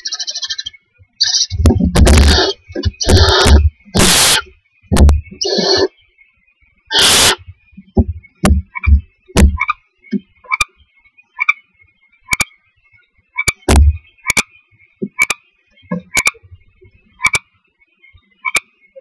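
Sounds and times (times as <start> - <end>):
low thumps and clicks in nest box: 1.5 - 5.9, 7.0 - 10.3, 13.4 - 17.4
owlet hissing screech: 2.2 - 4.5, 5.4 - 5.9, 6.9 - 7.4.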